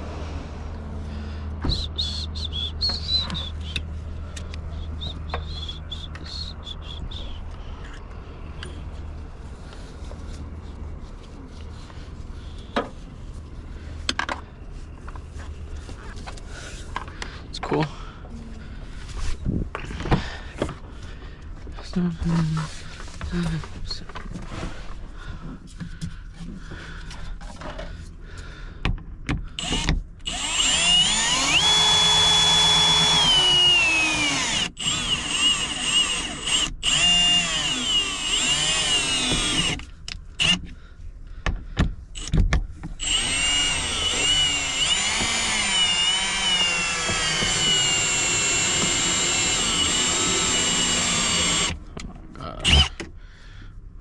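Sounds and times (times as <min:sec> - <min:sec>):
handheld power tool whine: 0:29.6 - 0:40.7, 0:42.2 - 0:42.4, 0:43.0 - 0:51.8, 0:52.6 - 0:53.0.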